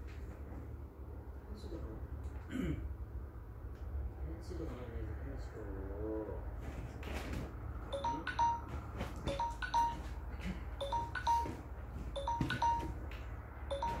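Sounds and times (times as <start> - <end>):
interval timer electronic chime: 7.9 - 10.2, 10.8 - 13.1, 13.7 - 14.0.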